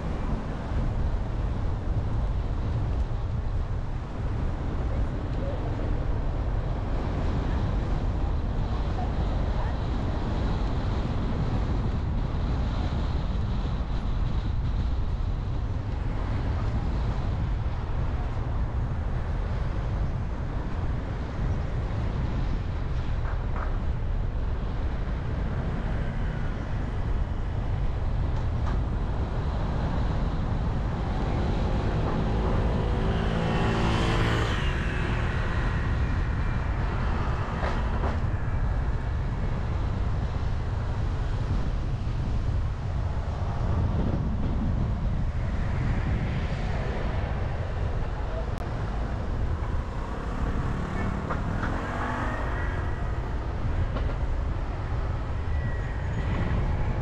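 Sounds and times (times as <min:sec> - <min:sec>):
car road and engine rumble: 0:00.0 - 0:57.0
vehicle passing close by: 0:31.0 - 0:38.3, 0:46.8 - 0:55.4.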